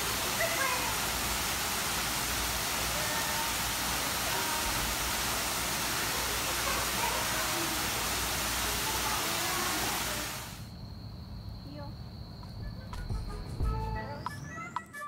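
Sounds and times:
waterfall rushing: 0.0s - 10.6s.

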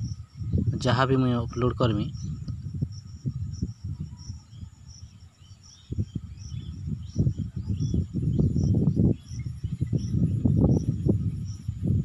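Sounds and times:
low rumbling thumps: 0.0s - 4.3s
insects chirping: 0.0s - 12.0s.

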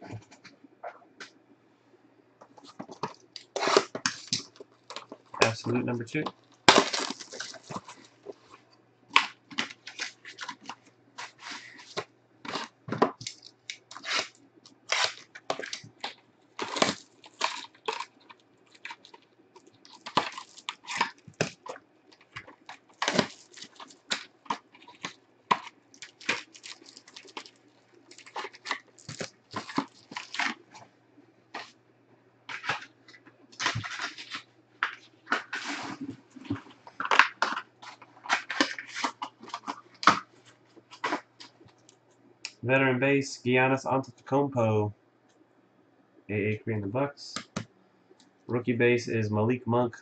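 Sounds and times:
plastic wrapper crinkling and tearing: 2.9s - 30.8s, 32.5s - 42.0s.

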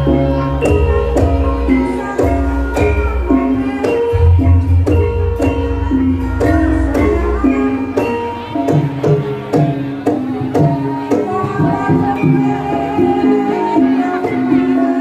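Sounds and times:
metallophones struck: 0.0s - 11.2s
hand drums: 0.0s - 15.0s.

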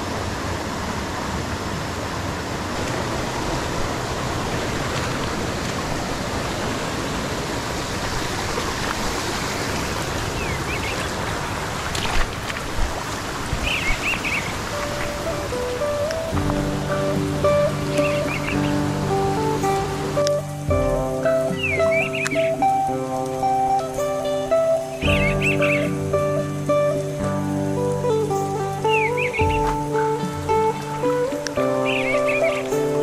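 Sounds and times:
fast-flowing river water: 0.0s - 33.0s
sharp knocks: 29.4s - 30.1s.

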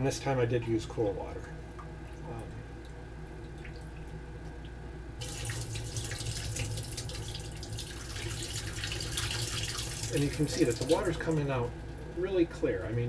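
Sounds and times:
water splashing into steel sink: 5.2s - 11.6s.

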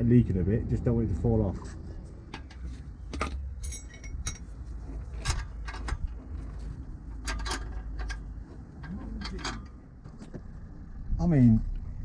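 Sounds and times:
metallic clinks and knocks: 2.3s - 9.8s.

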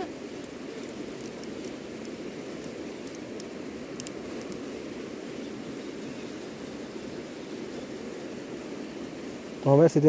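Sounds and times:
river water rushing: 0.0s - 10.0s
faint high ticks: 0.4s - 4.7s.

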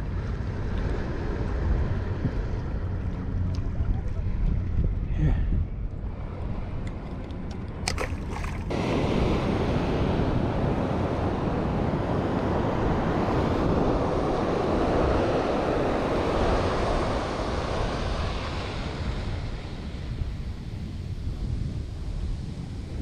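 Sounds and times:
wind on microphone: 0.0s - 23.0s
ocean surf breaking on beach: 8.6s - 20.9s.

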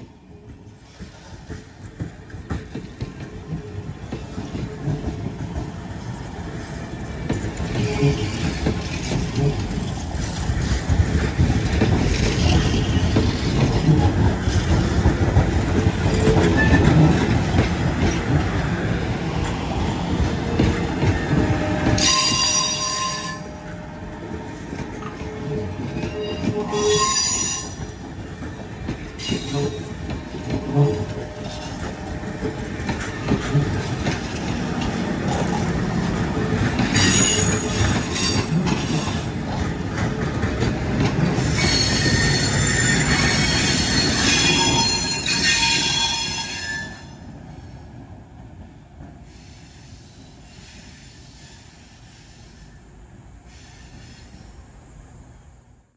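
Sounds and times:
train wheels rumbling on rail: 0.0s - 55.9s
high-pitched wheel squeal: 21.9s - 23.5s, 25.5s - 27.8s, 41.4s - 47.1s.

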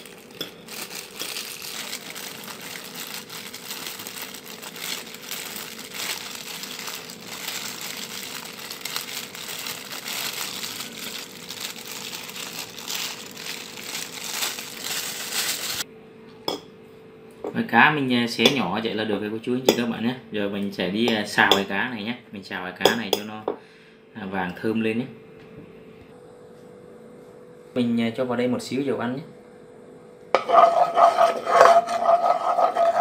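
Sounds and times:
crisp fried fish crackling: 0.0s - 15.8s
plastic gloves crinkling: 0.0s - 15.8s.

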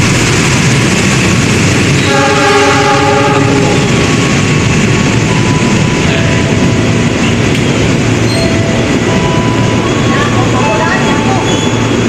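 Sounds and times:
train wheels rumbling on rail: 0.0s - 12.0s
train horn blast: 2.0s - 4.0s.

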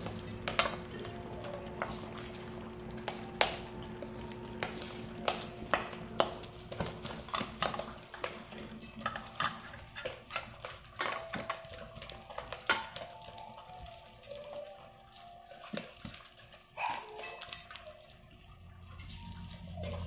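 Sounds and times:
dogs eating from metal bowl: 0.0s - 20.0s.

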